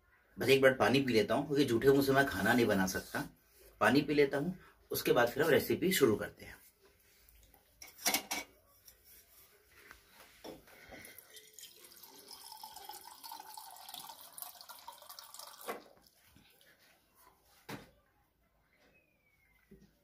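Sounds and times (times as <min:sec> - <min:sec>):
water running into a glass: 0:11.1 - 0:16.1.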